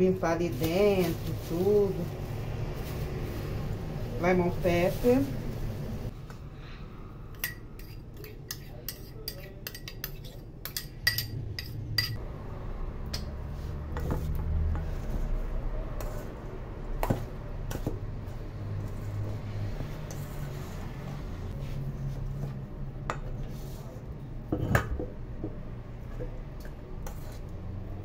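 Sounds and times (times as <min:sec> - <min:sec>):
utensils clinking against metal bowl: 0:07.4 - 0:12.2.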